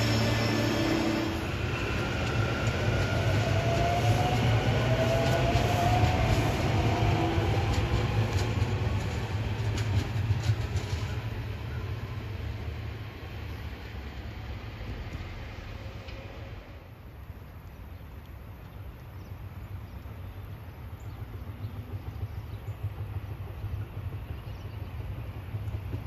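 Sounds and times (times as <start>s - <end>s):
electric train humming and whining: 0.0s - 17.0s
wheels clicking over rail joints: 1.9s - 11.8s.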